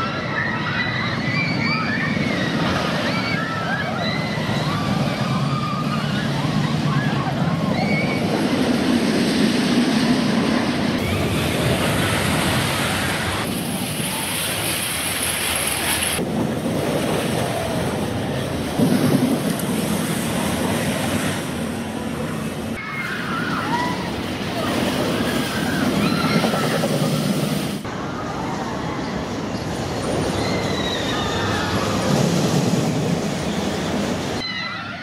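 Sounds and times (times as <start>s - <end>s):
riders shouting and screaming: 0.0s - 8.8s, 22.7s - 32.4s, 34.4s - 35.0s
roller coaster rumbling on track: 0.0s - 35.0s.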